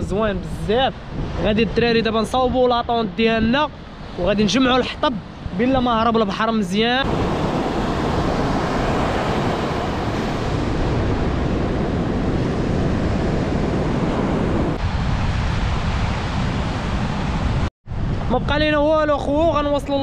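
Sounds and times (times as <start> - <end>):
sea waves washing on shore: 0.0 - 18.3
wind buffeting microphone: 0.0 - 20.0.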